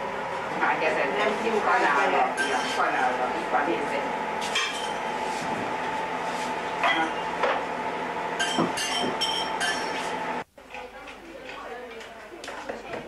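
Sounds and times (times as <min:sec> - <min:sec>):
steady hum: 0:00.0 - 0:10.6
utensils clinking on pot and bowls: 0:02.2 - 0:03.1, 0:06.8 - 0:07.3, 0:08.4 - 0:10.0.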